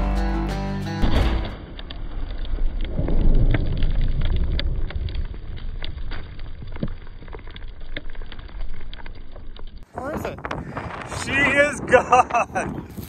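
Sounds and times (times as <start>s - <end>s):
low rumble: 1.0s - 9.6s
debris pattering on ground: 1.0s - 9.9s.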